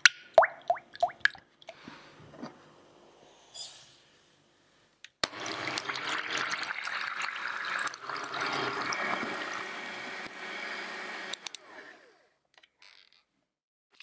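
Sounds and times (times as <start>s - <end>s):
electric hand mixer whirring: 5.2s - 12.4s.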